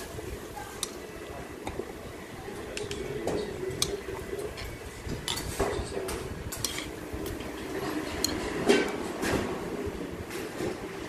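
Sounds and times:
soft stirring of noodles: 0.0s - 9.2s
utensils clinking against a bowl: 2.6s - 9.4s.

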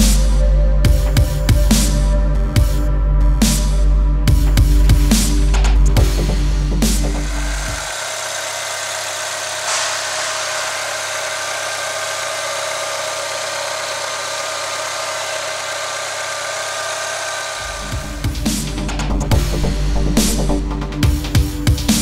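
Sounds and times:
car engine idling: 4.3s - 21.5s.

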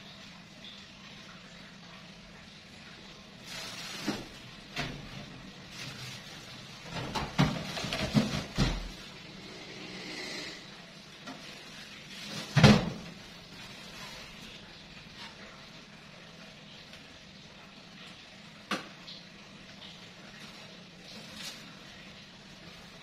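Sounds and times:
knocks of things shifted on shelf: 6.9s - 9.0s.

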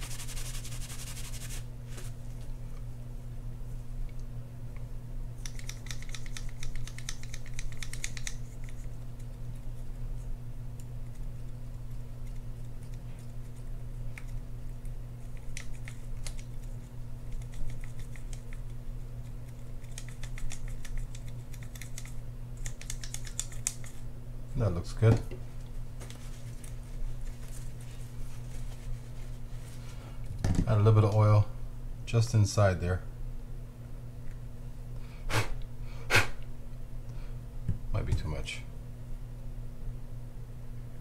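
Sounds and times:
toothbrush scrubbing metal: 0.0s - 1.6s, 15.2s - 18.7s
steady low hum: 0.0s - 41.0s.

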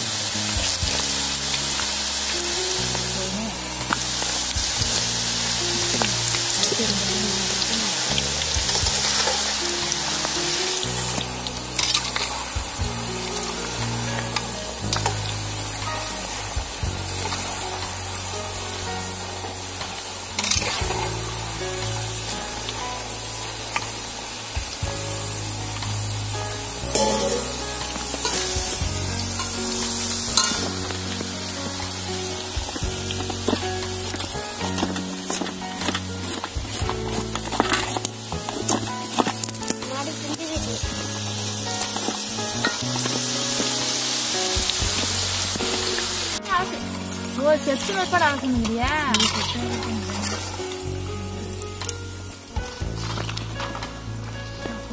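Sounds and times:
background music: 0.0s - 54.9s
chips deep-frying in oil: 0.0s - 54.9s
metal ladle clinking on pan: 30.4s - 30.6s, 49.2s - 49.6s.

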